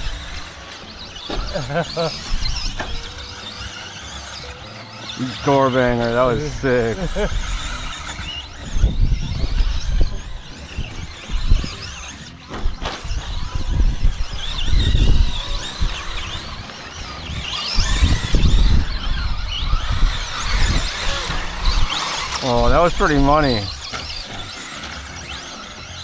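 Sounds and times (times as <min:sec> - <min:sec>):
electric motors whining: 0:00.0 - 0:26.0.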